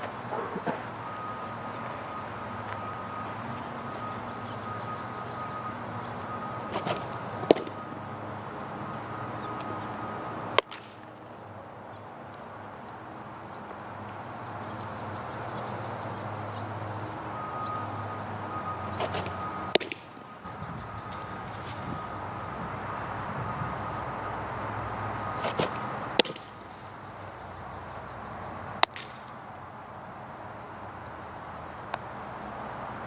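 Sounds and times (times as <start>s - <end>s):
outdoor background hum: 0.0s - 33.0s
ball popping into glove: 10.6s - 11.0s, 28.8s - 29.2s.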